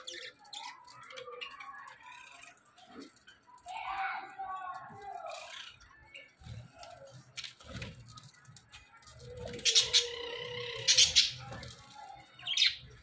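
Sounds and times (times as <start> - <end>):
budgerigars chirping and squawking: 9.4 - 11.6, 12.4 - 13.0
loud sharp bird calls: 9.5 - 11.6.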